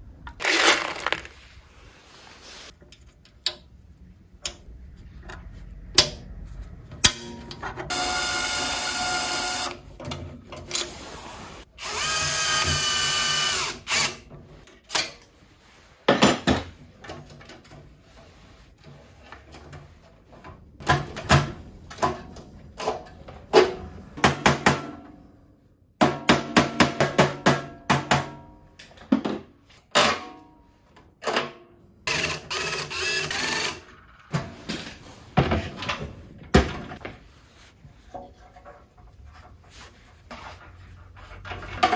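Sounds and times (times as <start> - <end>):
power drill running: 7.9 - 9.8, 11.8 - 14.2.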